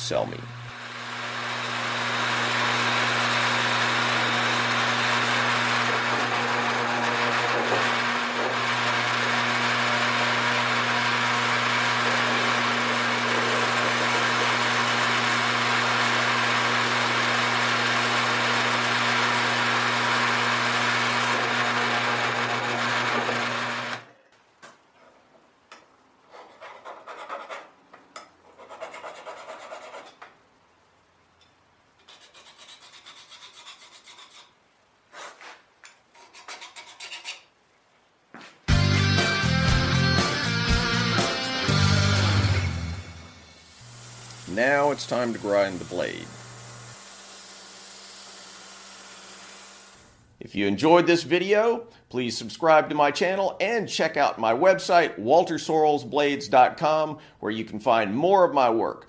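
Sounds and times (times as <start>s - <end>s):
drill press motor hum: 0.5s - 24.1s, 40.8s - 50.3s.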